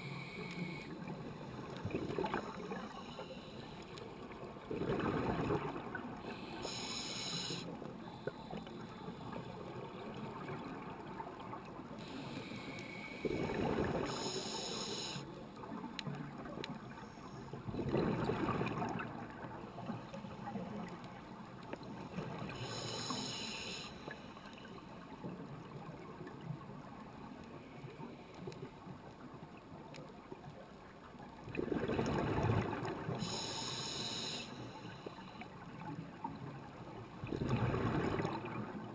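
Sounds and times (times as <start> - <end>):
regulator inhalation hiss: 0.0 - 1.0, 2.8 - 4.0, 6.3 - 9.3, 12.0 - 13.3, 14.1 - 15.3, 22.6 - 24.7, 33.2 - 35.4
exhaled bubbles rushing: 37.2 - 38.8.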